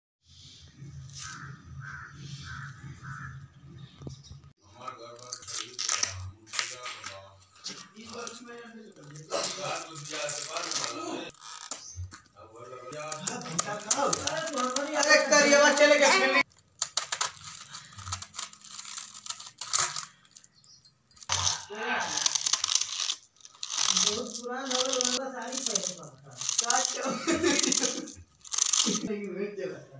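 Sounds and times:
crow cawing: 0:01.3 - 0:03.4
person speaking: 0:04.6 - 0:11.3, 0:12.6 - 0:16.5, 0:21.3 - 0:29.9
knife shredding cabbage: 0:21.4 - 0:29.0.

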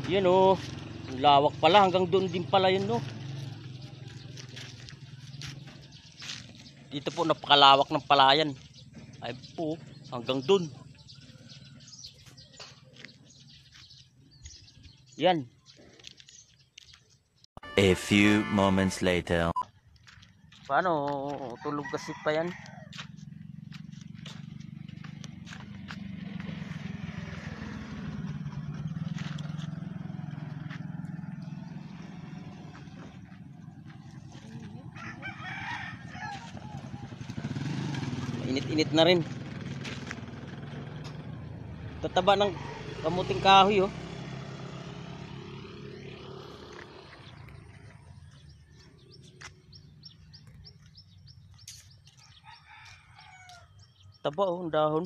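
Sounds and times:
vehicle engine running: 0:00.0 - 0:15.2, 0:22.7 - 0:52.2
bird chirping: 0:03.3 - 0:20.5, 0:47.0 - 0:54.7.

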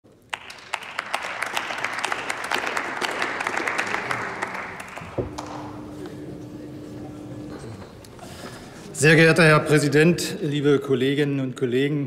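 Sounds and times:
crowd applauding: 0:00.2 - 0:06.2.

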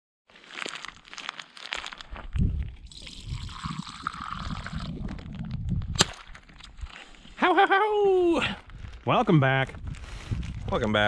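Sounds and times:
plastic wrapper crinkling: 0:00.4 - 0:02.4.

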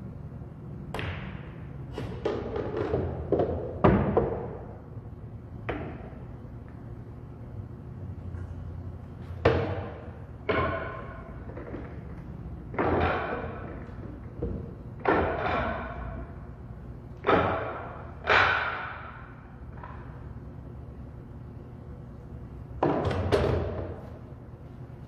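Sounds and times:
sharp knocks echoing: 0:09.4 - 0:11.8, 0:17.2 - 0:20.1.

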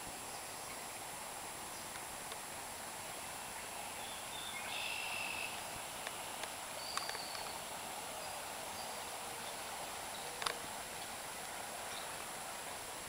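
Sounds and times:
steady outdoor hiss: 0:00.0 - 0:13.0
rising whistled bird call: 0:04.0 - 0:05.6
light clicks: 0:06.0 - 0:07.6, 0:10.4 - 0:10.6.

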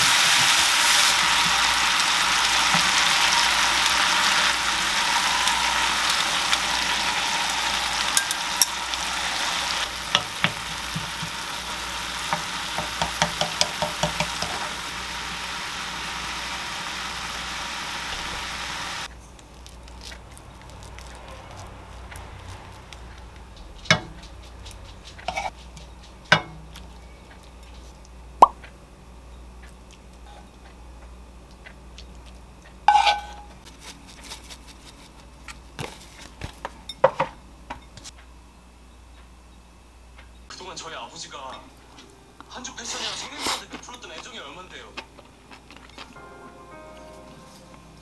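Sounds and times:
food simmering in a frying pan: 0:00.0 - 0:19.1
wooden spoon clinking on pan and bowl: 0:08.2 - 0:08.9.

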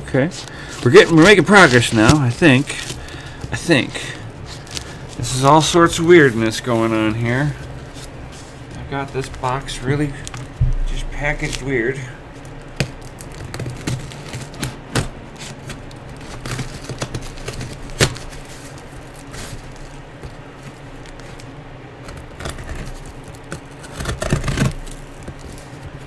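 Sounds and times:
cardboard crackling: 0:00.2 - 0:26.0
cardboard box being cut: 0:23.8 - 0:25.2.

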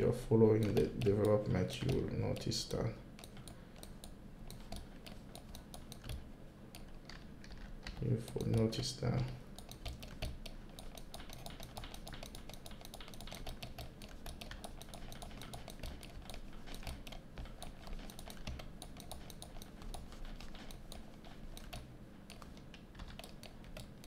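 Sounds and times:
computer keyboard clicking: 0:00.0 - 0:24.0.

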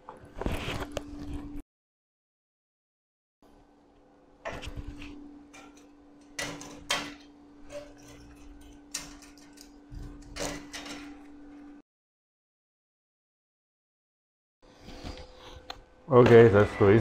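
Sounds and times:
steel parts clinking and scraping: 0:05.5 - 0:11.6.

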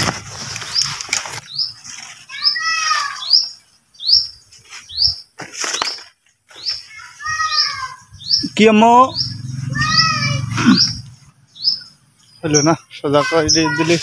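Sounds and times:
bird lower falling call: 0:06.6 - 0:12.0
bird high repeated note: 0:07.4 - 0:11.9.

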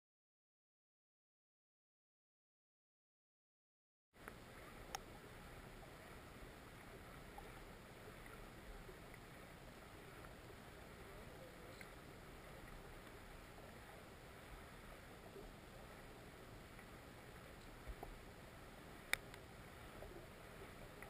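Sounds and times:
faint clicks: 0:04.2 - 0:05.1, 0:11.1 - 0:14.6, 0:16.7 - 0:18.3, 0:18.9 - 0:21.0
muffled underwater river rush: 0:04.2 - 0:21.0.

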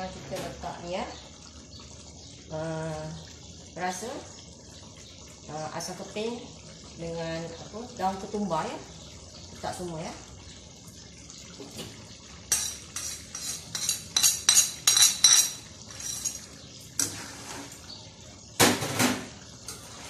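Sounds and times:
spatula scraping a wok: 0:12.5 - 0:14.8, 0:15.9 - 0:17.8
spatula clinking on a plate: 0:12.5 - 0:16.5.

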